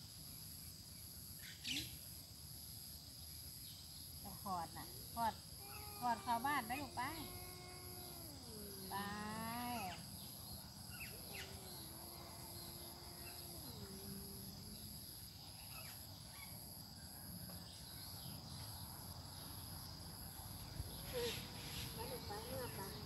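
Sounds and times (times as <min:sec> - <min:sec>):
crickets chirping: 0:00.0 - 0:23.0
cat yowling: 0:05.6 - 0:10.1, 0:11.1 - 0:14.8.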